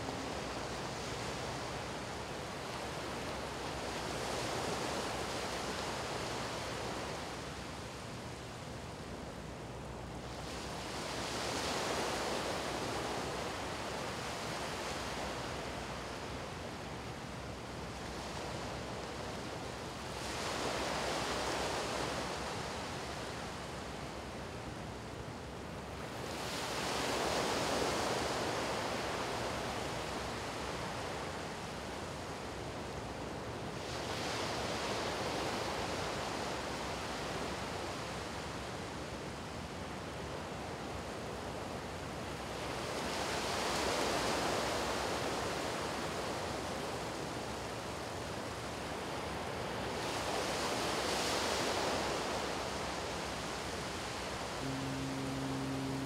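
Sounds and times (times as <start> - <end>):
small waves breaking on sand: 42.2 - 56.0.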